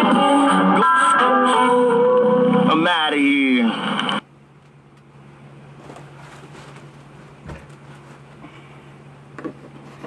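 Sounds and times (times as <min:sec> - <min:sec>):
music: 0:00.0 - 0:02.8
faint bump: 0:06.6 - 0:07.9.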